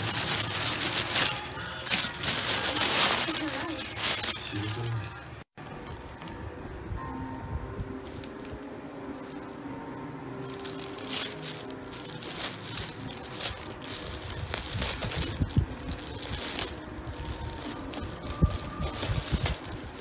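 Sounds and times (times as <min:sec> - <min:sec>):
plastic bag crinkling: 0:00.0 - 0:06.3, 0:10.4 - 0:20.0.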